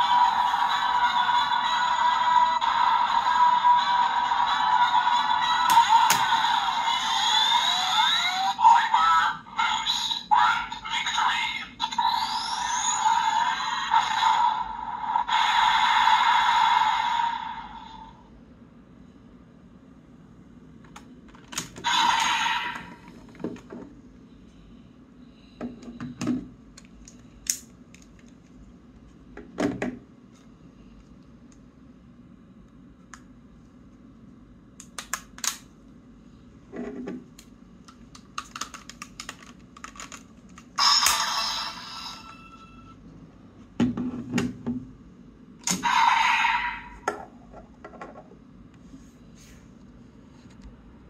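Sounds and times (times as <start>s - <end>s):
plastic toy clicks and knocks: 38.2s - 41.2s.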